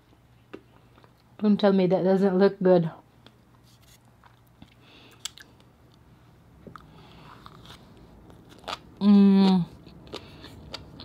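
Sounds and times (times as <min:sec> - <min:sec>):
soft mouth clicks and smacks: 0:04.2 - 0:06.0.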